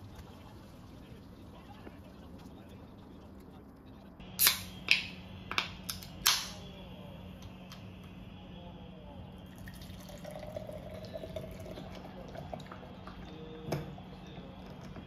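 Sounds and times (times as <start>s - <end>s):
can pull tab snapping: 4.4s - 6.6s
fizzy drink pouring into glass: 9.5s - 13.2s.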